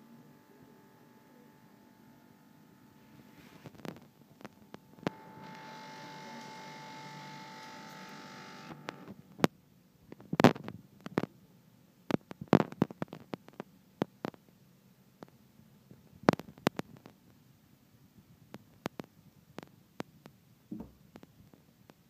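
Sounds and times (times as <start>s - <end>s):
electric hum: 0.0s - 9.5s.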